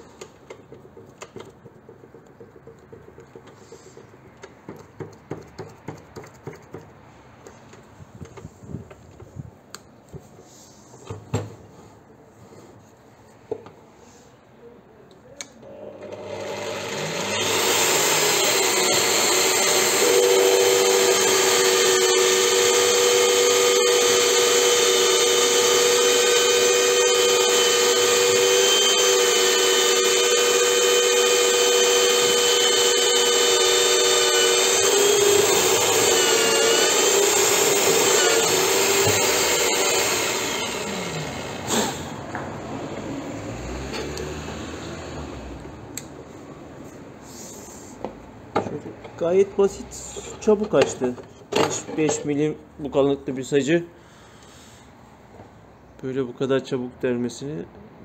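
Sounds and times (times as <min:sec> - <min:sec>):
drill press motor whining: 0:15.6 - 0:42.2.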